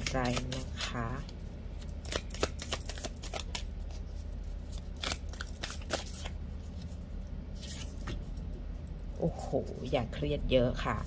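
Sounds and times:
cards being shuffled: 0.0s - 7.0s, 7.6s - 8.5s.

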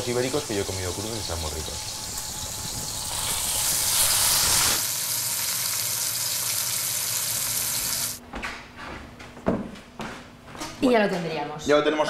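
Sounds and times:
meat sizzling in a frying pan: 0.0s - 8.2s.

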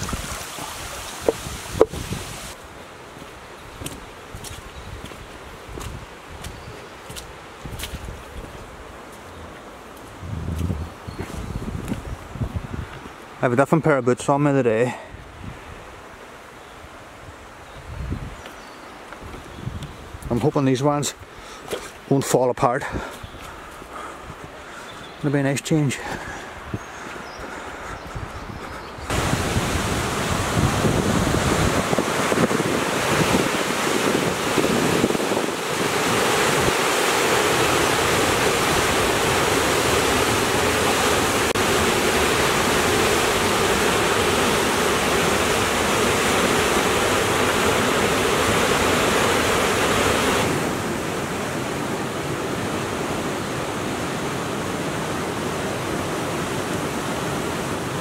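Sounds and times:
wind buffeting microphone: 0.0s - 2.6s, 3.8s - 8.7s, 10.1s - 13.1s, 17.8s - 18.4s, 19.2s - 20.5s, 26.2s - 50.8s
shallow river rapids: 0.0s - 4.3s, 29.1s - 58.0s
river water rushing over rocks: 0.0s - 4.5s, 29.1s - 58.0s.

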